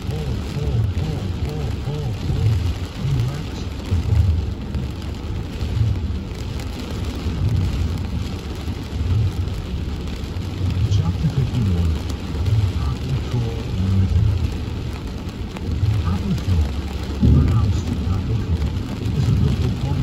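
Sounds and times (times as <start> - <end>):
muffled deep voice from car audio: 0.0 - 5.0, 5.6 - 6.1, 8.9 - 9.6, 10.5 - 20.0
rain on a car: 0.0 - 20.0
road noise: 0.0 - 20.0.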